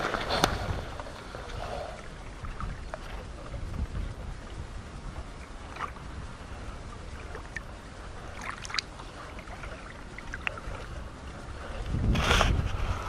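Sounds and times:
river water lapping and splashing: 0.0s - 13.0s
wind rumble on microphone: 0.0s - 13.0s.

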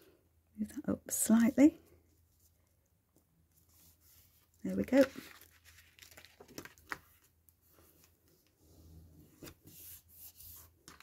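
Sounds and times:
paper rustling: 3.6s - 8.5s.

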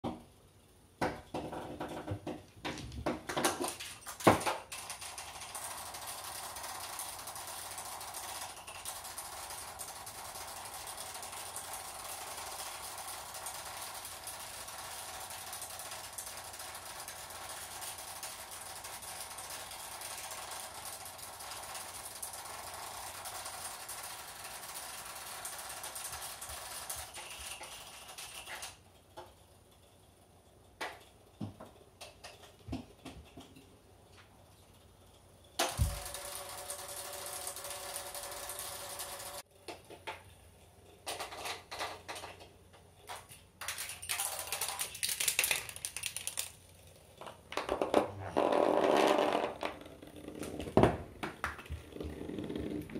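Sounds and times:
toy motor whirring: 4.2s - 28.8s, 35.6s - 39.5s, 43.6s - 47.0s.

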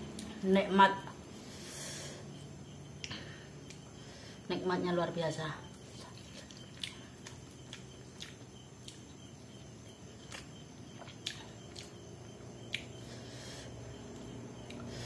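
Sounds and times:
low steady hum: 0.0s - 15.0s
chewing mouth clicks and smacks: 6.0s - 9.2s, 9.9s - 12.0s, 12.6s - 13.0s.

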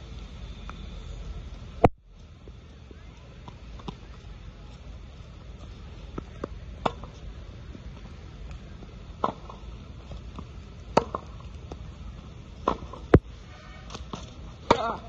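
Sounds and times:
ball slapping wet court: 5.6s - 7.2s, 9.2s - 11.8s, 12.6s - 13.3s, 13.9s - 15.0s
racket hitting tennis ball: 5.6s - 7.2s, 9.2s - 11.8s, 12.6s - 13.2s, 13.9s - 15.0s.

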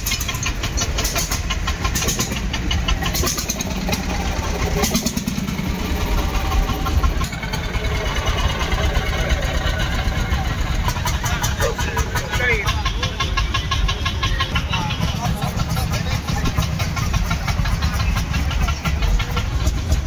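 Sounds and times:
tractor engines idling: 0.0s - 20.0s.

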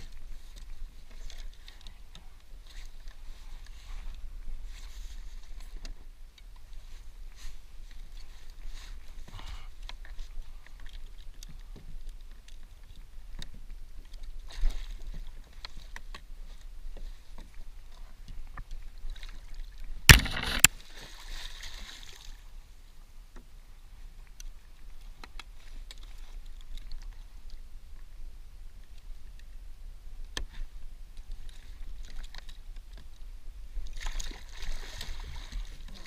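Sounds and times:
water sloshing against kayak hull: 0.0s - 22.5s, 31.3s - 36.0s.

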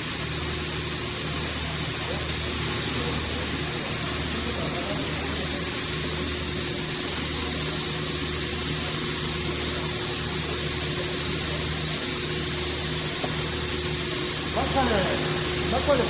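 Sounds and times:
hydraulic motor and pump hum: 0.0s - 16.0s
constant hiss: 9.6s - 16.0s.

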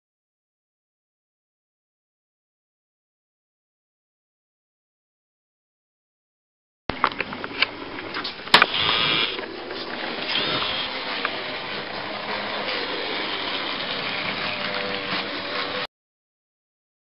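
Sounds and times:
small electric motor whirring: 8.6s - 11.4s.

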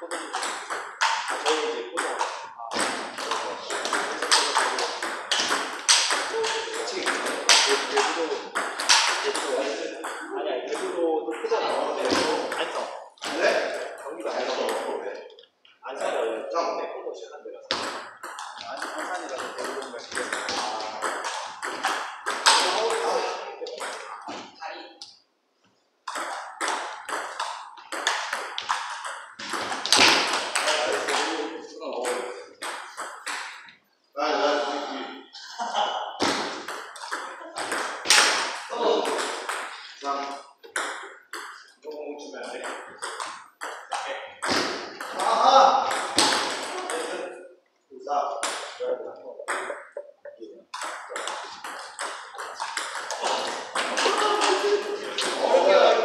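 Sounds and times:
table tennis ball hits: 0.0s - 14.0s, 17.7s - 24.6s, 26.1s - 33.8s, 36.2s - 39.8s, 40.6s - 41.7s, 42.4s - 47.3s, 48.4s - 48.8s, 49.4s - 55.6s.

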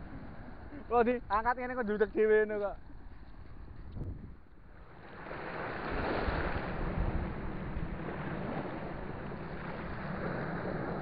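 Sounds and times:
small waves washing on sand: 4.8s - 11.0s.

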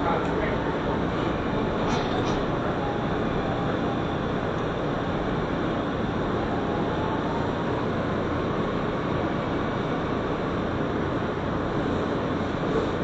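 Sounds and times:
faint whine: 0.0s - 13.0s
subway wheels rumbling on rail: 0.0s - 13.0s.

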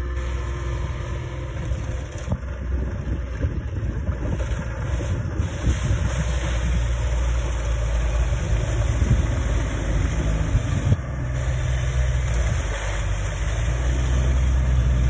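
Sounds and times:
diesel engine running: 0.0s - 15.0s
tires churning through mud and water: 0.0s - 15.0s.

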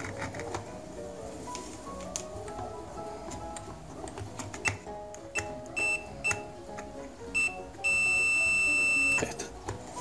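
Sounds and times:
background music: 0.0s - 10.0s
multimeter continuity beeps: 4.6s - 6.4s, 7.4s - 9.3s.

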